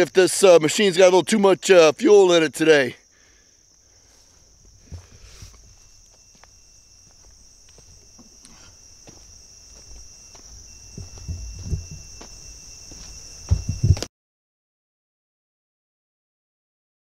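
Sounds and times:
insects chirring: 0.0 - 14.1
footsteps on dirt: 4.0 - 14.1
low thumps: 10.8 - 14.1.

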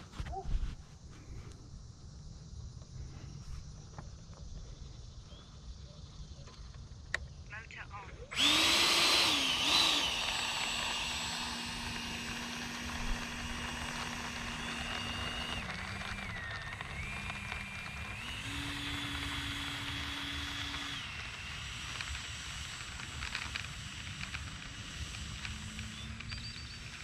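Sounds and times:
electric ducted fan whining: 6.9 - 27.0.

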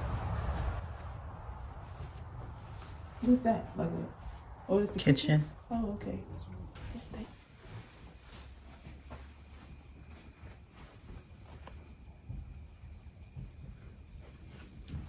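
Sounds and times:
faint knocks and steps: 0.0 - 15.0
crickets trilling: 6.7 - 15.0.

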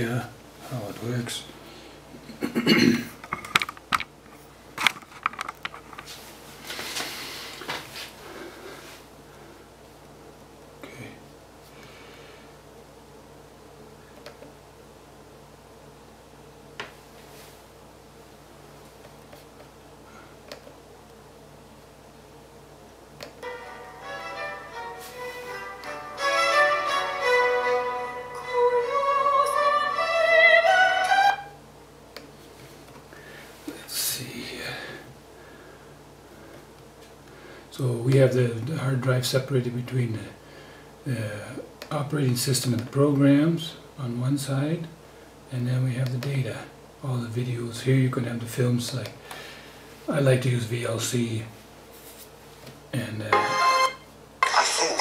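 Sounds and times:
soft brushing: 6.0 - 9.1, 17.0 - 17.7, 24.9 - 25.7, 51.5 - 52.6
melody of long sliding notes: 23.4 - 31.6, 53.3 - 54.1.

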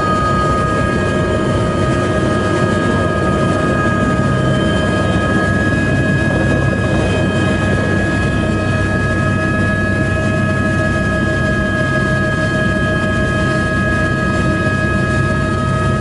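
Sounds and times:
helicopter engine and rotor drone: 0.0 - 16.0.

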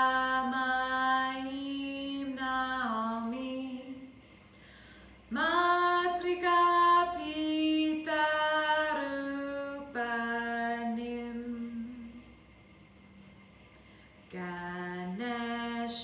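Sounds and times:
woman chanting: 0.0 - 4.1, 5.3 - 12.2, 14.3 - 16.0.

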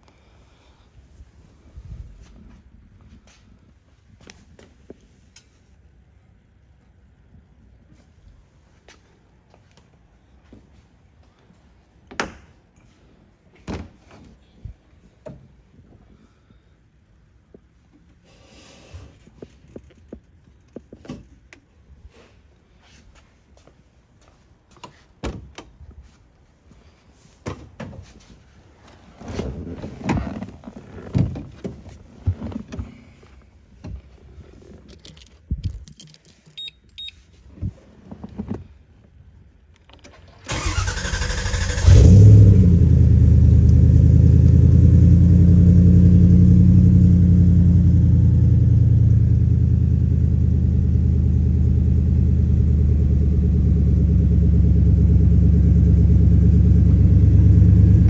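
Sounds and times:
rustling and clicks: 28.9 - 38.7
starter motor cranking: 40.5 - 42.0
car engine idling: 41.8 - 58.0.

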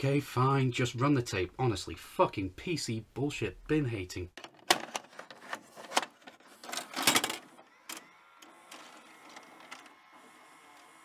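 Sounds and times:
clattering whirr of tape loading: 4.7 - 11.0.

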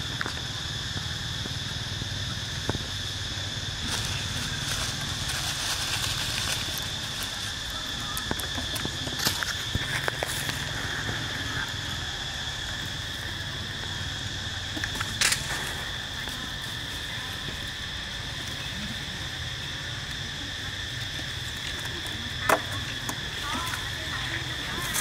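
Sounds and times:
insect chorus: 0.0 - 25.0.

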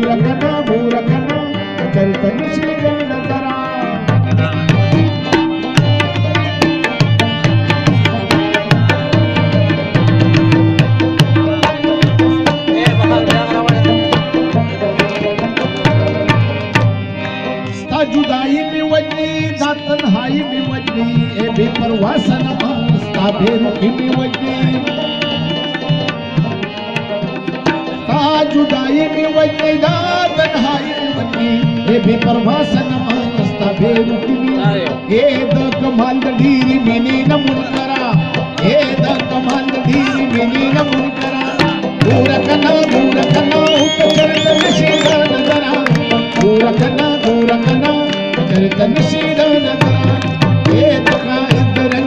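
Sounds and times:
harmonium chords: 0.0 - 52.0
rhythmic percussion: 0.0 - 52.0
plucked rabab: 41.2 - 46.6.

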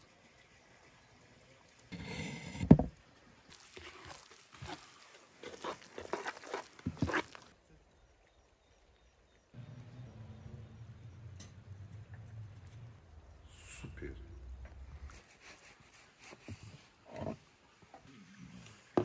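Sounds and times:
spoon stirring wet mixture: 3.5 - 7.6
low steady hum: 9.6 - 15.2.

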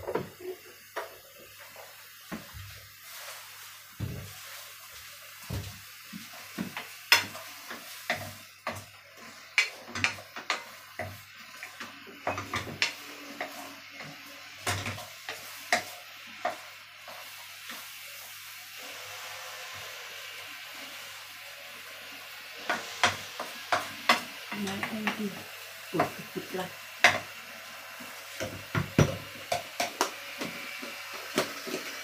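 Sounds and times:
food sizzling: 0.0 - 32.0
wooden spoon scraping frying pan: 1.6 - 20.2, 22.6 - 25.4.

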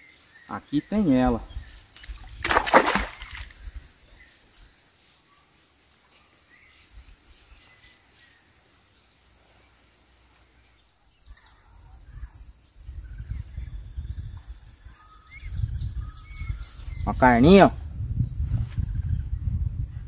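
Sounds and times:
small birds chirping: 0.0 - 19.7
low rumble on microphone: 17.7 - 20.0.

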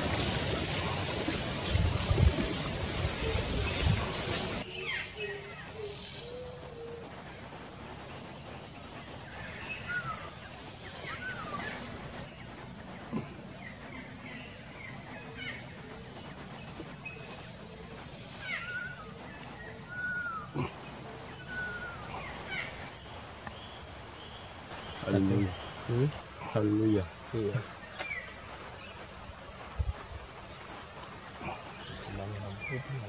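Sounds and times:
high-pitched insect drone: 24.2 - 33.0.

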